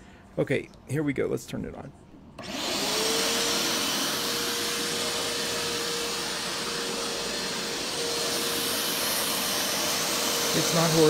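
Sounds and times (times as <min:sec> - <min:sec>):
vacuum motor whine and air rush: 0:02.4 - 0:11.0.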